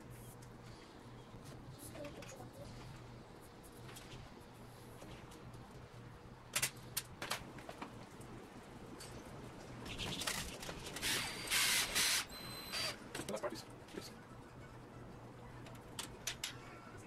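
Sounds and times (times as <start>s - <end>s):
handling clicks of wires and parts: 6.5s - 8.3s, 15.6s - 16.6s.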